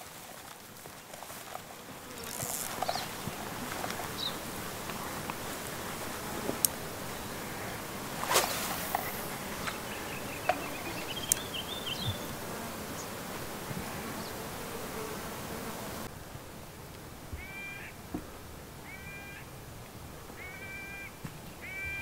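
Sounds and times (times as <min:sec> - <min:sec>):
insects buzzing: 0:00.0 - 0:16.6.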